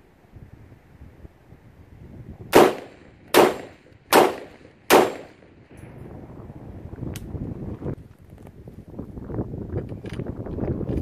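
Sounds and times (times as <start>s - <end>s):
suppressed rifle shots: 2.5s - 5.4s.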